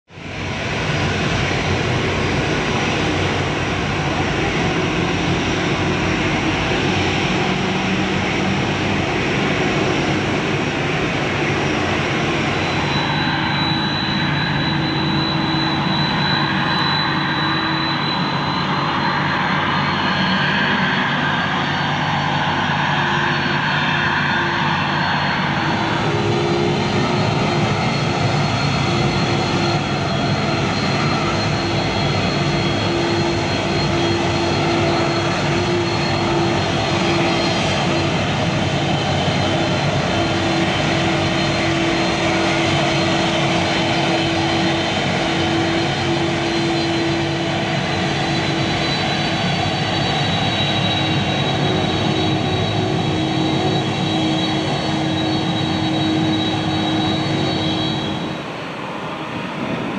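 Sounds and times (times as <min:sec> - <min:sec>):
jet engines running: 0:00.1 - 0:59.9
thin high whistle: 0:12.2 - 0:20.6, 0:23.0 - 0:58.4.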